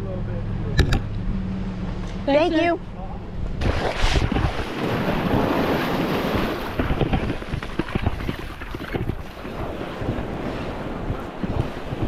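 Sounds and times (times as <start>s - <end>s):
wind buffeting microphone: 3.2s - 12.0s
small waves washing over sand: 3.6s - 12.0s.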